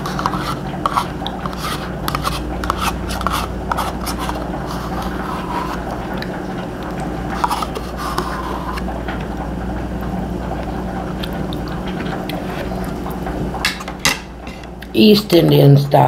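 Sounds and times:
metal spoon scraping yogurt cup: 0.0 - 6.3, 7.3 - 8.9
steady low hum: 0.0 - 16.0.

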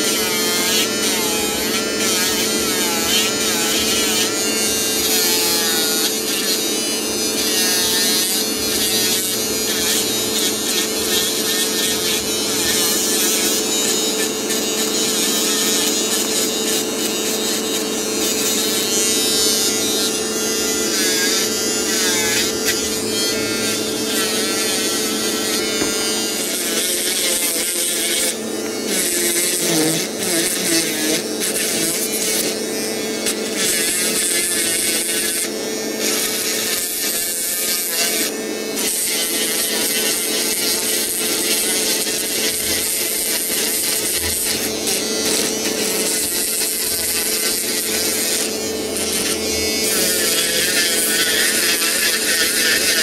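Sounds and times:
electric nail drill whining: 0.0 - 53.0
grinding hiss on nail: 7.3 - 20.1, 25.7 - 32.6, 33.2 - 53.0.

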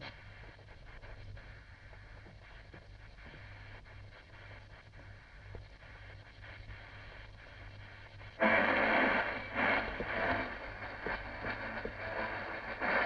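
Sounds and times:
radio static hiss: 0.0 - 13.0
loud rushing noise: 8.4 - 13.0.

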